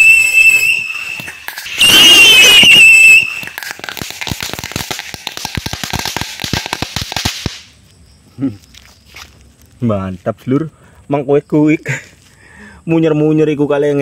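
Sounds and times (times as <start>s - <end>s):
wavering firework whistle: 0.0s - 7.7s
firecrackers popping: 0.0s - 7.8s.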